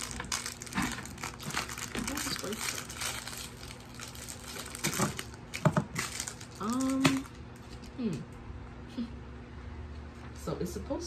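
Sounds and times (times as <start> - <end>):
plastic bags rustling: 0.0 - 7.9.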